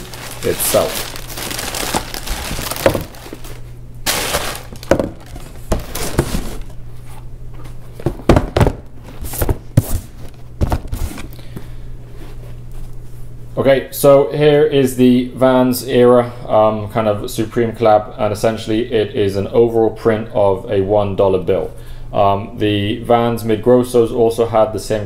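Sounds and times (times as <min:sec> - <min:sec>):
tissue paper rustling: 0:00.0 - 0:06.7
knocks and thuds on cardboard box: 0:02.6 - 0:03.2, 0:04.8 - 0:06.6, 0:08.0 - 0:11.1.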